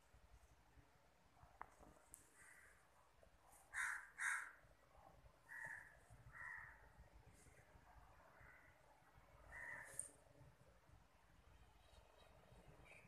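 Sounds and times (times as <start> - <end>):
crow cawing: 2.4 - 2.8, 3.7 - 4.6, 5.5 - 6.8, 9.5 - 10.0.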